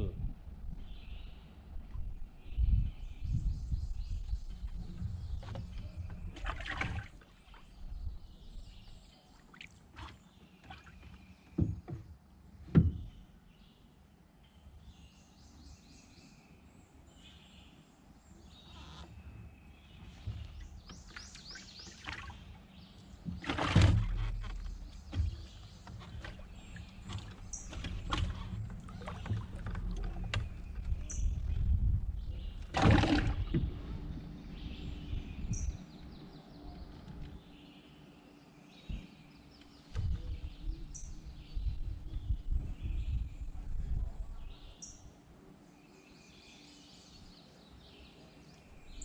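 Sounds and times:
gear knocking and scraping in kayak: 4.3 - 7.0, 23.1 - 36.2
low rumble: 27.4 - 37.4.

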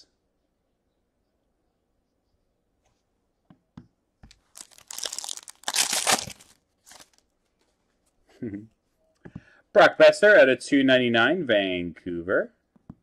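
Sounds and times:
foil wrapper tearing and crinkling: 4.4 - 7.2.

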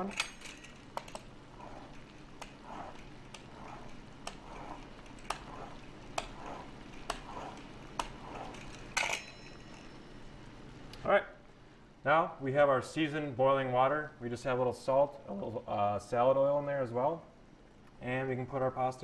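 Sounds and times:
cutter wheel tapping board: 0.9 - 9.1
pizza cutter cutting pasta: 0.9 - 9.5.

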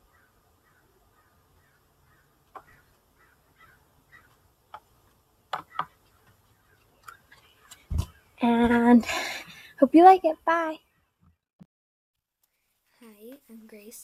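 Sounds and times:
bird calling faintly: 0.0 - 4.8.

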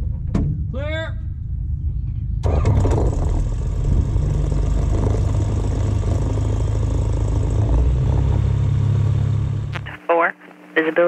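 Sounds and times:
light aircraft engine idling: 1.3 - 9.0.

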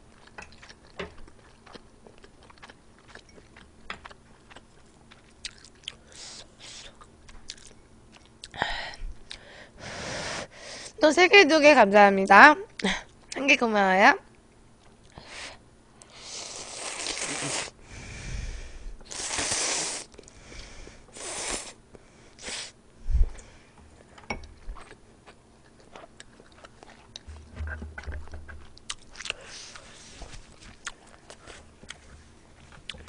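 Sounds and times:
wet chewing and lip smacking: 0.1 - 9.5, 24.5 - 29.9, 30.5 - 33.0
slurping noodles: 16.1 - 17.8, 19.1 - 20.2, 21.2 - 21.8.

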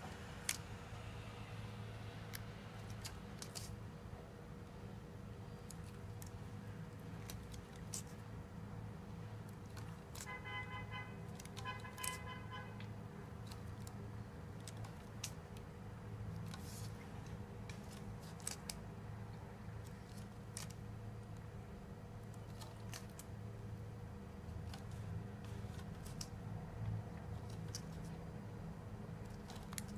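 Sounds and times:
steady low hum: 0.0 - 29.9
grip tape crackling: 2.3 - 3.8, 5.5 - 8.3, 9.4 - 15.7, 16.3 - 18.9, 19.8 - 21.5, 22.2 - 23.4, 24.5 - 28.3, 29.1 - 29.9
horn-like tones: 10.2 - 12.9.

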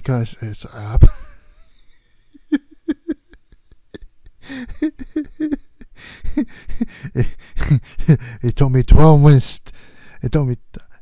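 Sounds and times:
man laughing in short bursts: 1.0 - 8.3.

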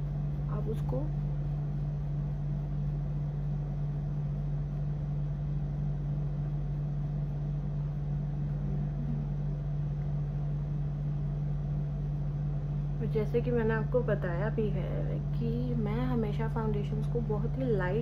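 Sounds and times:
steady low hum: 0.0 - 18.0
deeper drone: 7.0 - 12.2.

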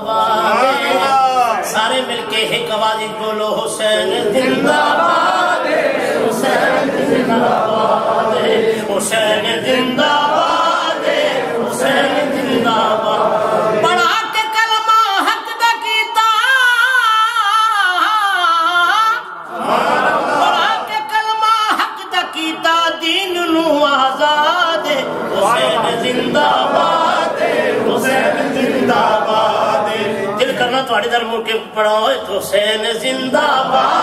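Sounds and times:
unaccompanied male singing: 8.3 - 10.7, 13.8 - 19.3, 20.6 - 26.6, 28.9 - 34.0.

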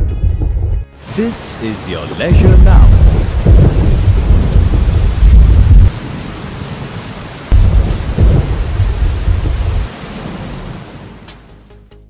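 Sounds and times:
thunder rumbling: 0.4 - 11.2
steady rain: 1.0 - 11.8.

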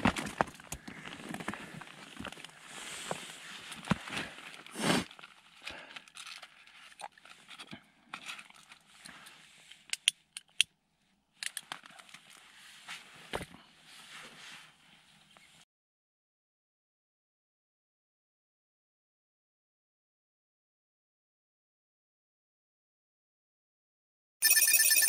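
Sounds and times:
rustling and crinkling handling noise: 0.0 - 9.9, 11.5 - 15.6.

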